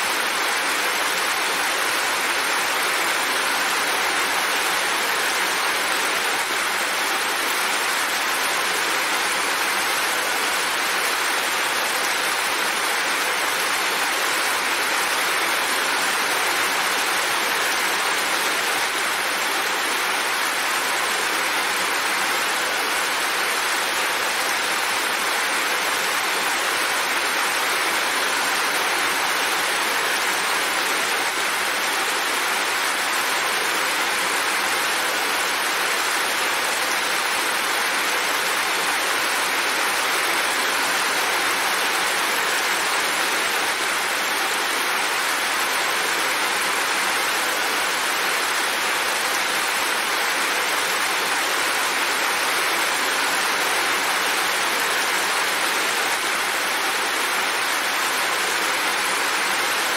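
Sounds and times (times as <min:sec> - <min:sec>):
heavy rainfall: 0:00.0 - 0:59.9.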